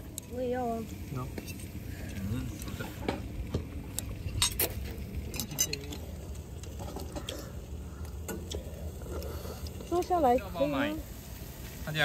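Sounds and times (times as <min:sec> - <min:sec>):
cutlery clinking on steel bowls: 0:04.3 - 0:06.0.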